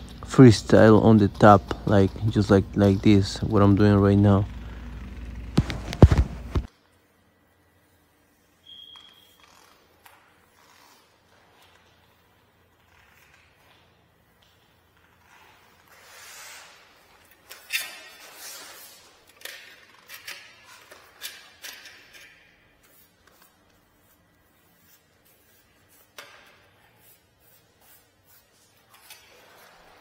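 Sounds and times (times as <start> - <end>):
paintbrush swishing strokes: 22.8 - 30.0.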